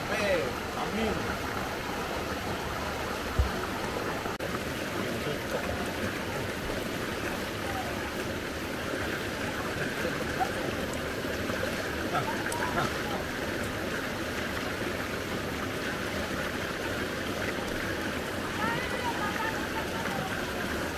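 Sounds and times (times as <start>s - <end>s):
river water flowing over stones: 0.0s - 20.9s
low thump: 3.3s - 3.6s
faint voices: 3.9s - 13.7s, 18.3s - 20.9s.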